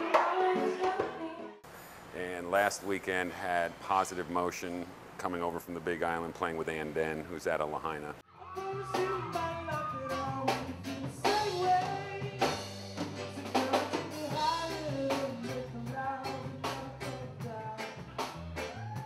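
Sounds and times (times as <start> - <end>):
guitar: 0.0 - 1.6, 8.2 - 19.0
man singing: 8.3 - 18.2
bass guitar: 8.3 - 19.0
drum kit: 8.4 - 19.0.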